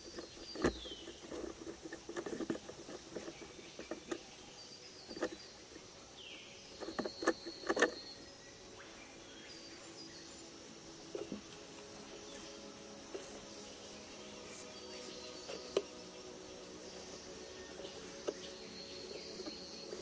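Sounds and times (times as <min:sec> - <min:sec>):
fingers rustling soil: 0:00.0 - 0:05.4, 0:11.1 - 0:20.0
soil crackling: 0:00.0 - 0:05.9, 0:10.4 - 0:20.0.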